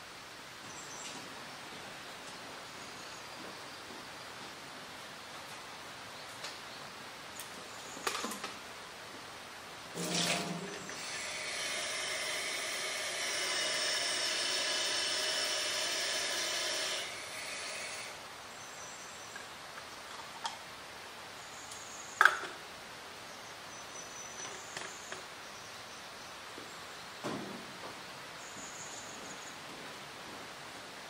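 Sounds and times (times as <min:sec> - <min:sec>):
tap water running into bottle: 0:10.0 - 0:11.2.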